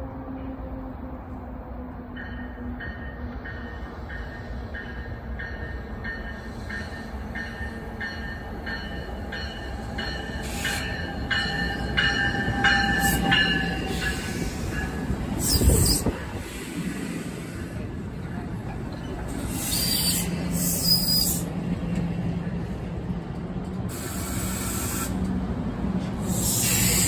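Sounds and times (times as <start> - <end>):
train coaches rumbling by: 0.0 - 27.0
train bell ringing: 2.2 - 15.8.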